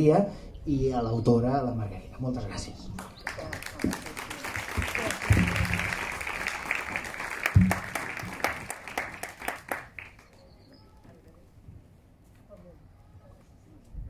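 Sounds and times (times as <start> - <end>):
audience applauding: 3.0 - 10.5.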